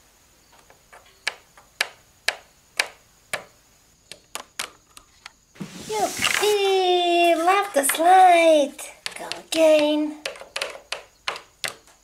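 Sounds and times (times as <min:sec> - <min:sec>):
plastic doll feet tapping ladder: 0:00.6 - 0:03.5, 0:06.2 - 0:12.0.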